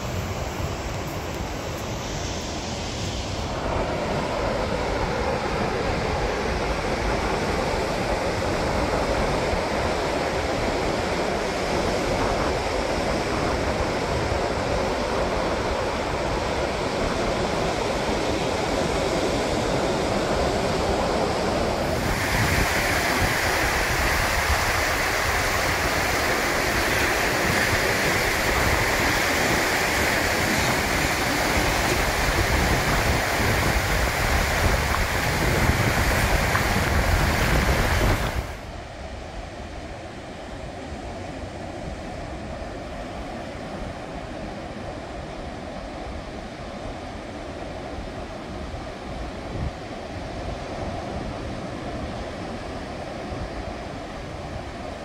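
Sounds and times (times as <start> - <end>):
surf breaking on beach: 0.0 - 40.1
wind on microphone: 0.0 - 55.0.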